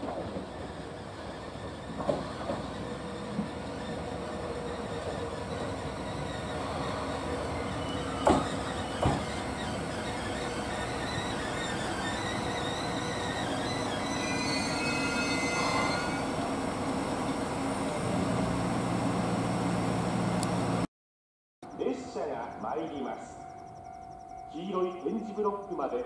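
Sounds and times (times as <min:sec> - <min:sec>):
wheels clacking over rail joint: 0:00.0 - 0:14.0
brakes squealing: 0:00.0 - 0:20.8.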